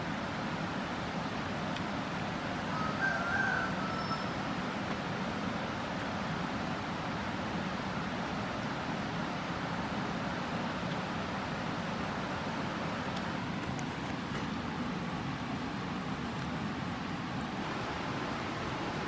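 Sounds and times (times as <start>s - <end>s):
steady rushing noise: 4.5s - 19.0s.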